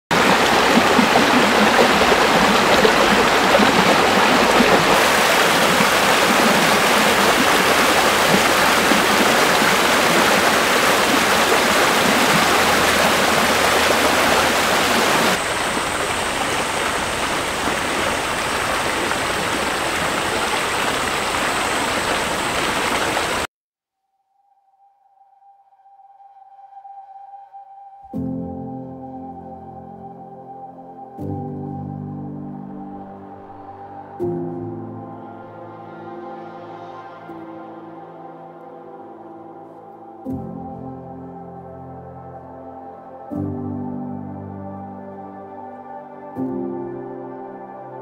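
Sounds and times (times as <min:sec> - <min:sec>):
stream rushing over rocks: 0:00.1 - 0:23.5.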